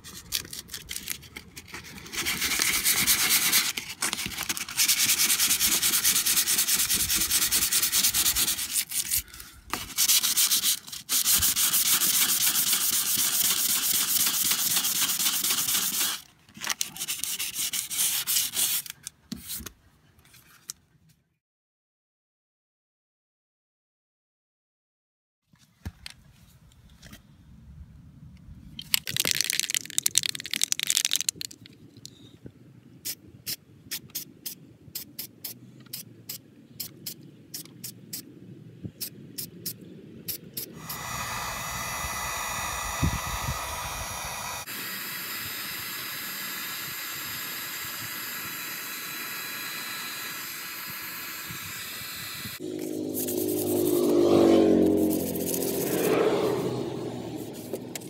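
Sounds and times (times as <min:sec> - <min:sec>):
spray can ball rattling: 0:02.2 - 0:09.1, 0:09.8 - 0:16.2, 0:28.8 - 0:31.7
sanding block scraping metal: 0:04.6 - 0:09.2, 0:09.8 - 0:16.2, 0:16.9 - 0:18.9, 0:52.8 - 0:54.1, 0:54.9 - 0:56.1
spray hiss: 0:09.9 - 0:16.2, 0:40.6 - 0:52.6.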